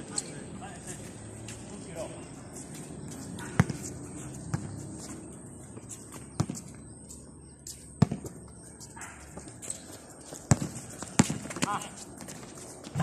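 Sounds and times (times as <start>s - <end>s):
footsteps on concrete: 0.8s - 13.0s
basketball bouncing on concrete: 3.1s - 4.9s, 6.2s - 6.8s, 7.9s - 9.6s, 10.4s - 13.0s.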